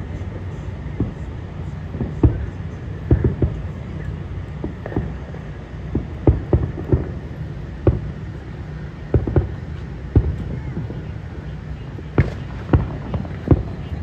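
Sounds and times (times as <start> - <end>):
firework shells bursting: 1.0 - 11.1, 12.0 - 14.0.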